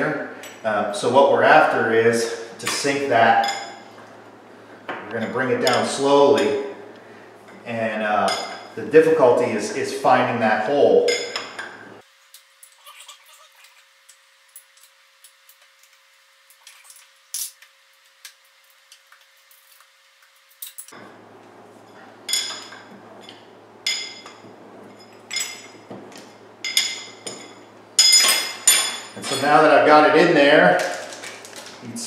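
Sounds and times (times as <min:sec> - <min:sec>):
metal tools clinking: 0:20.5 - 0:21.0, 0:21.9 - 0:29.7.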